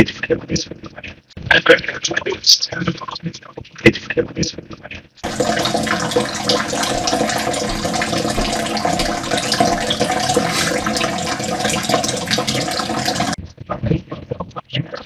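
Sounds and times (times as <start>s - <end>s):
faucet running into sink: 5.2s - 13.4s.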